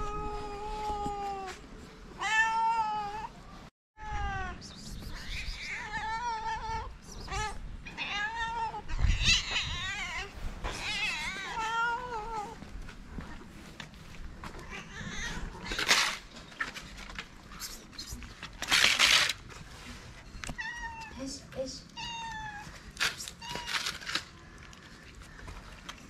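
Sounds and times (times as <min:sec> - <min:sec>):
cats meowing: 0:04.0 - 0:12.6, 0:14.4 - 0:16.2, 0:20.5 - 0:21.2, 0:21.9 - 0:24.2.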